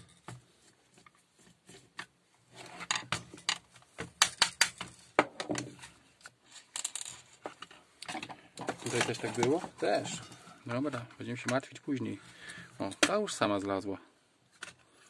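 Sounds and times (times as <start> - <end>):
plastic parts clicking and knocking: 2.8 - 10.4, 12.8 - 13.3
plastic scrape: 8.6 - 10.5.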